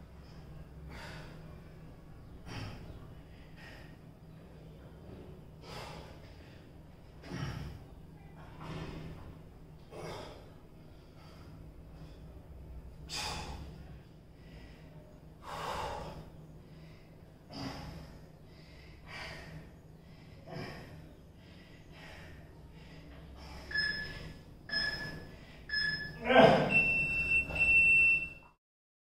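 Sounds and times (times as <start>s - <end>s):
man breathing hard: 0.1s - 1.8s, 2.4s - 4.8s, 5.6s - 7.9s, 9.9s - 24.4s
electronic timer beeps: 23.7s - 28.5s.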